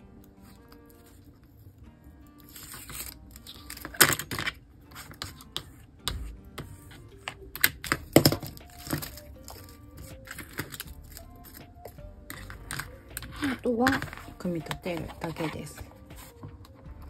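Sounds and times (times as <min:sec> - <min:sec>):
quiet background music: 0:00.0 - 0:17.0
paper and card handled: 0:02.4 - 0:16.8.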